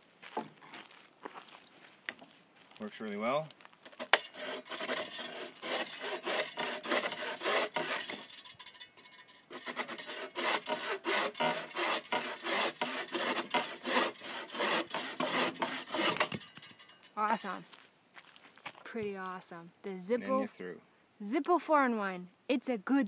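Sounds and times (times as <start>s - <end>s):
saw cutting wooden branch: 3.9s - 16.9s.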